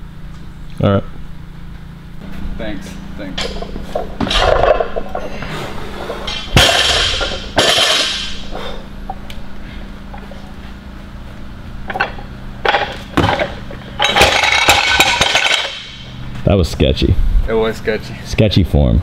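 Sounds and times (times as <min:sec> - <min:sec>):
barbell clanking and thudding: 0:03.2 - 0:05.4, 0:06.0 - 0:08.5, 0:11.8 - 0:16.0.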